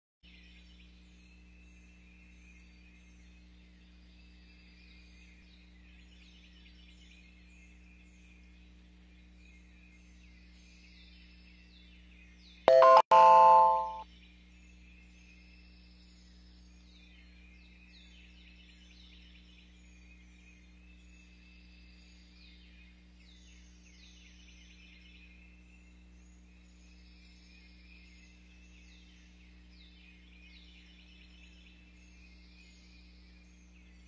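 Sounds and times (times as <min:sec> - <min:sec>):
songbirds chirping: 0:00.3 - 0:34.0
electronic chime: 0:12.7 - 0:14.0.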